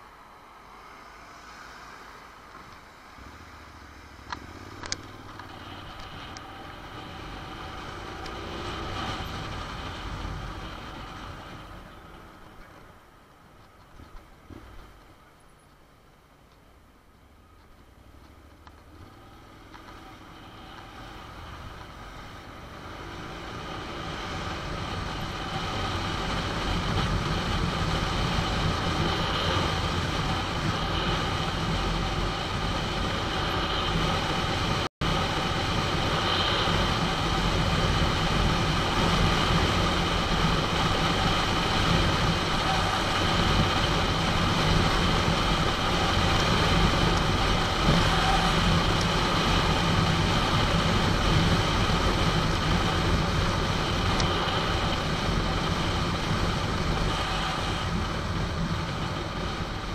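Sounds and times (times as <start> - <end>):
road noise: 0.0 - 59.9
motorcycle engine running: 3.2 - 12.9, 17.2 - 59.9
wind noise: 20.4 - 59.9.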